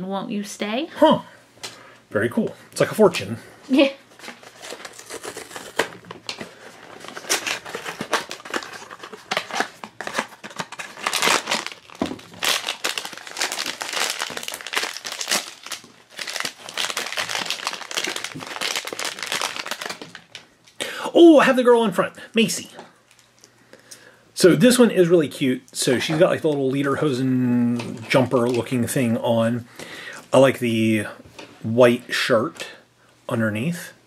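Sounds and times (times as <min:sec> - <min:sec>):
foil bag crinkling: 0:04.1 - 0:20.8.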